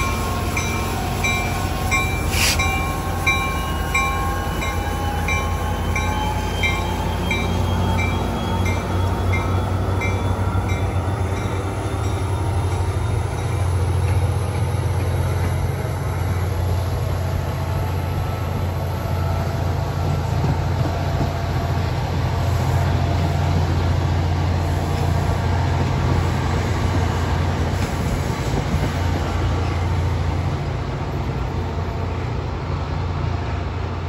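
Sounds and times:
locomotive bell ringing: 0:00.0 - 0:14.7
train rolling: 0:00.0 - 0:34.0.

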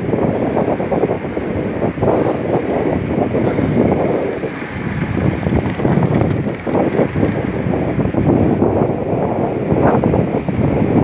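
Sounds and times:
wind buffeting microphone: 0:00.0 - 0:11.0
river rushing: 0:01.6 - 0:08.7.

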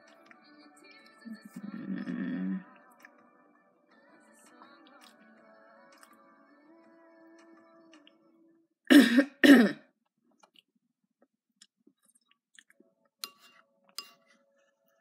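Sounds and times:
person coughing: 0:08.9 - 0:09.9.

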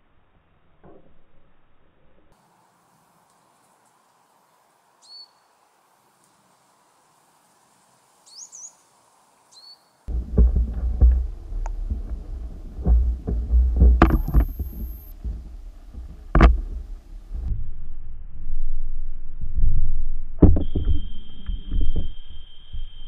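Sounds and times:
underwater knocks and clicks: 0:10.1 - 0:17.5
steady tone: 0:10.1 - 0:23.0
underwater rumble: 0:10.1 - 0:23.0.

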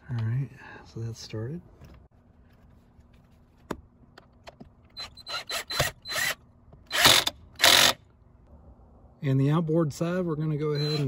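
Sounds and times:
cordless drill driving a screw: 0:05.0 - 0:08.0, 0:10.8 - 0:11.0.

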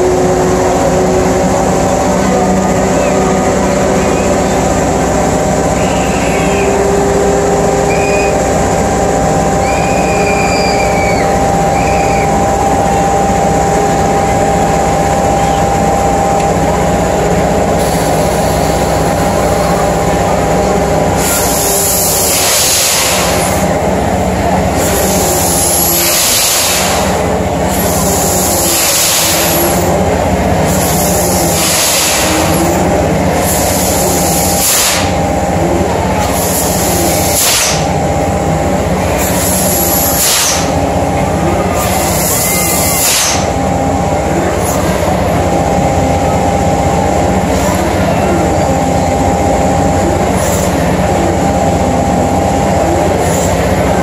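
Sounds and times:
ride machinery humming: 0:00.0 - 0:54.0
loud hissing whoosh: 0:21.1 - 0:23.7.

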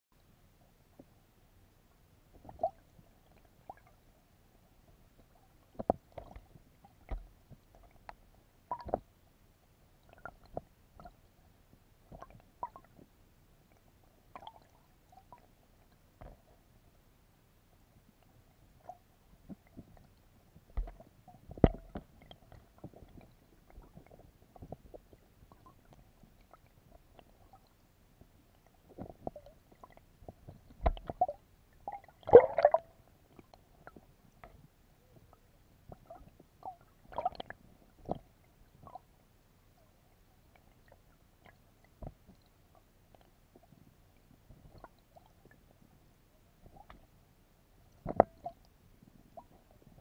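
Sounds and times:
underwater gurgles: 0:04.8 - 0:09.1, 0:18.6 - 0:39.2, 0:47.8 - 0:50.0
sharp knocks underwater: 0:08.7 - 0:09.1, 0:20.8 - 0:25.0, 0:29.0 - 0:33.0, 0:48.0 - 0:48.6.

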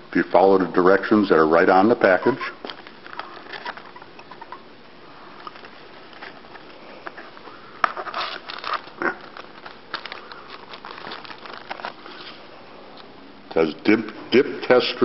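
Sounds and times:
packaging rustling and crinkling: 0:02.6 - 0:04.5, 0:05.3 - 0:12.6.

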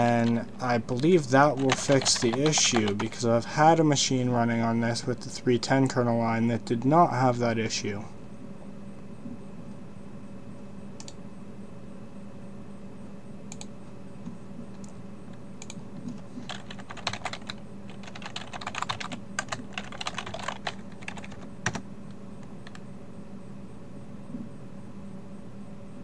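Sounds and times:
low steady hum: 0:00.0 - 0:26.0
typing on a keyboard: 0:01.0 - 0:03.2, 0:16.4 - 0:21.8, 0:22.6 - 0:22.8.

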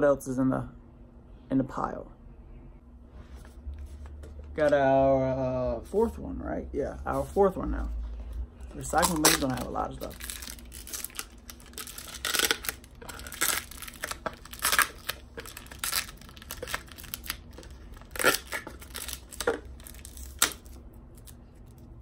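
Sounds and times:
tape and cardboard tearing: 0:08.8 - 0:21.8.

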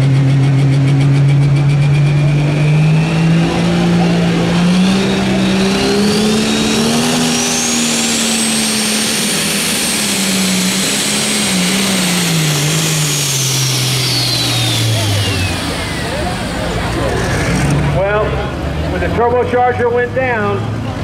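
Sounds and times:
tractor diesel engine under load: 0:00.0 - 0:21.0
high turbo whistle: 0:01.3 - 0:16.2
announcer speaking: 0:18.0 - 0:20.7.

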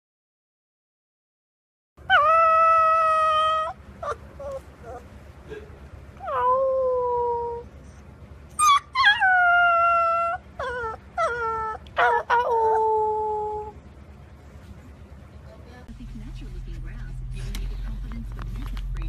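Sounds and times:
puppy howling: 0:02.0 - 0:05.1, 0:06.2 - 0:07.7, 0:08.5 - 0:13.8
puppy yipping: 0:02.1 - 0:05.1, 0:08.5 - 0:13.0.

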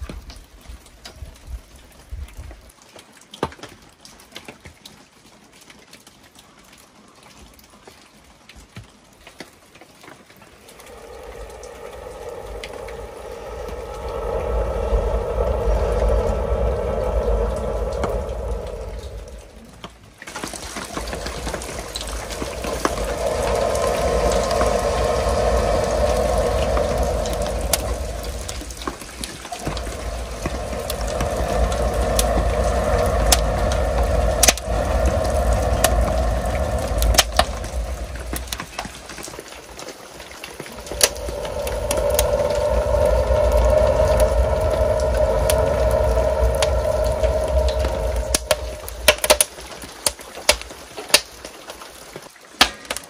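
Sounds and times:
air blown through a tube: 0:10.5 - 0:50.7
burning wood crackling: 0:10.6 - 0:39.5, 0:40.4 - 0:51.5.

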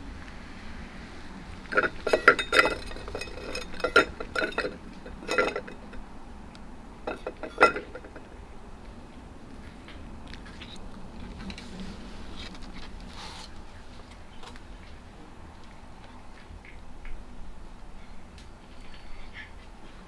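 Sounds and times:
metal bowl clinking on wooden boards: 0:01.7 - 0:06.1, 0:07.0 - 0:08.4.

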